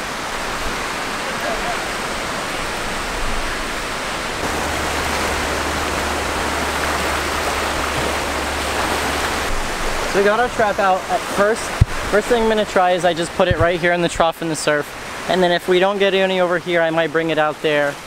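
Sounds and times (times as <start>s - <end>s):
small waves breaking on sand: 0.0s - 12.7s.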